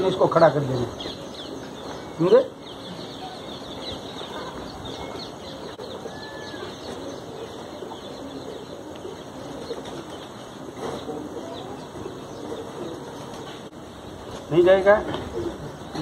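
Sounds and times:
steady background noise: 0.0s - 16.0s
high bird chirps: 0.8s - 8.6s
bird cooing: 1.0s - 13.7s, 15.2s - 16.0s.

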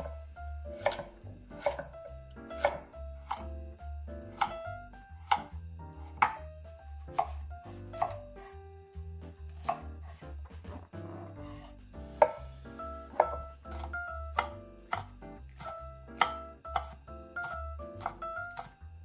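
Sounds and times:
knife chopping on wooden board: 0.0s - 3.6s, 4.2s - 8.6s, 9.2s - 18.8s
light background music: 0.0s - 19.0s.

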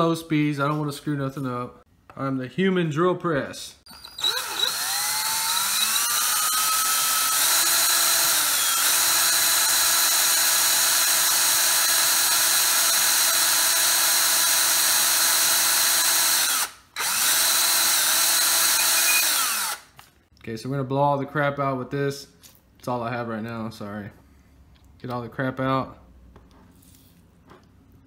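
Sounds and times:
electric drill whining: 3.9s - 20.0s.

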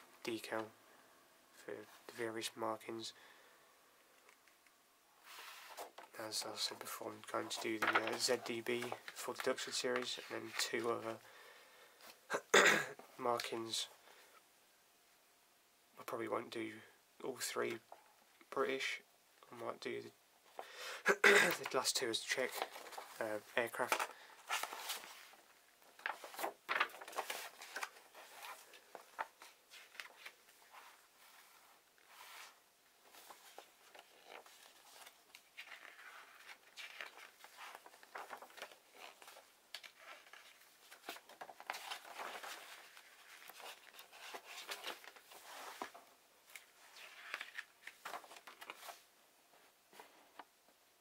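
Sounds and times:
paper pages rustling: 7.5s - 10.8s, 22.4s - 49.1s.

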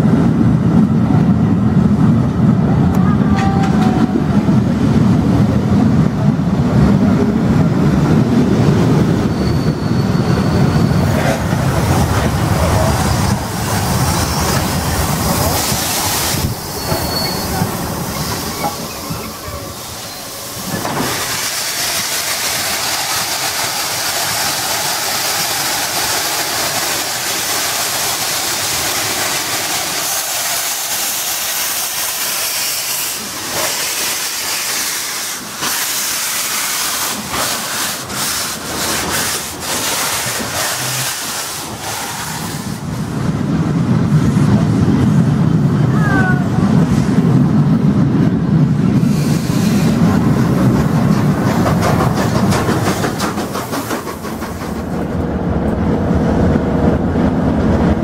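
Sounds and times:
steam locomotive hissing steam: 8.6s - 43.3s, 48.8s - 55.0s
locomotive sharp beats: 49.0s - 55.1s.

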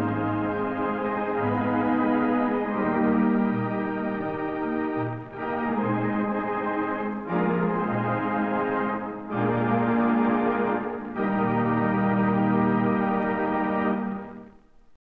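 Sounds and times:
theatre organ playing chords: 0.0s - 14.7s.

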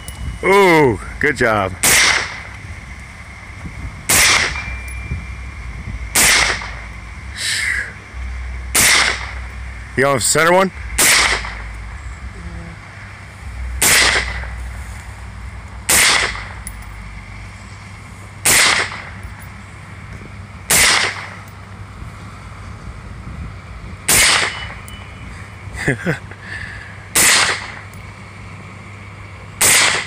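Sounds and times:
rifle shots hitting steel plates: 1.8s - 2.5s, 4.1s - 5.0s, 6.2s - 6.8s, 8.7s - 9.5s, 11.0s - 11.7s, 13.8s - 14.5s, 15.9s - 16.8s, 18.4s - 19.3s, 20.7s - 21.4s, 24.1s - 24.9s, 27.2s - 27.8s, 29.6s - 30.0s.

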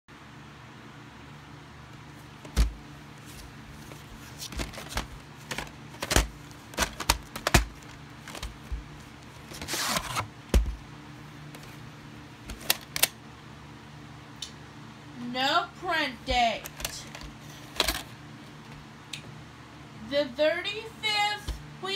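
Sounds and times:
faint steady hum: 0.1s - 21.9s
plastic cassette clicks and knocks: 4.5s - 8.8s, 12.5s - 13.1s.

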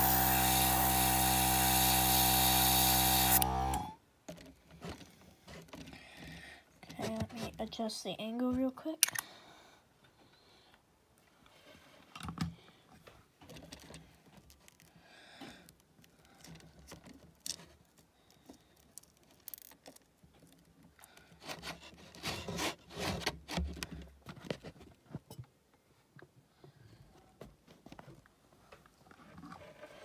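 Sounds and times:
handling clicks and scrapes: 4.3s - 7.8s, 11.5s - 25.5s, 27.7s - 30.0s.

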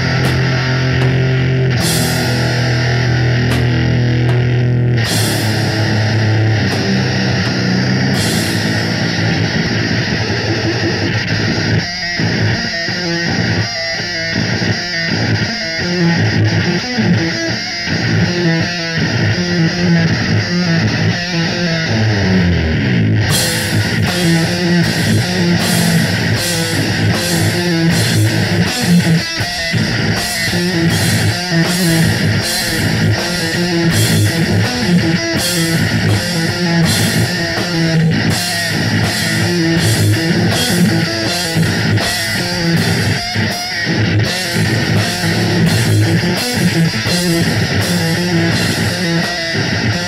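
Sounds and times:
cymbals crashing: 0.0s - 9.8s, 23.3s - 50.0s
bass riff: 0.0s - 50.0s
distorted electric guitar riff: 0.0s - 50.0s
drums: 0.0s - 50.0s.

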